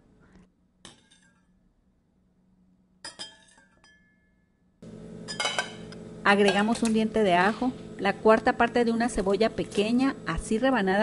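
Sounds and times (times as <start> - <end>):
spoon clinking against glass jar: 3.0 - 4.4, 5.3 - 5.8.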